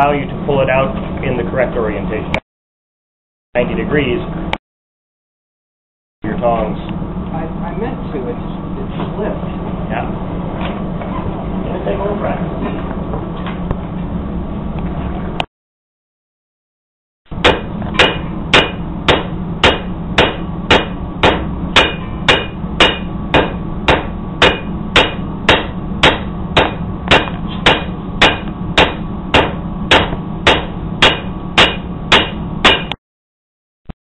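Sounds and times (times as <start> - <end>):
steady low hum: 0.0 - 2.4, 3.6 - 4.6, 6.2 - 15.5, 17.3 - 33.0
hammer ringing on anvil: 17.4 - 33.0.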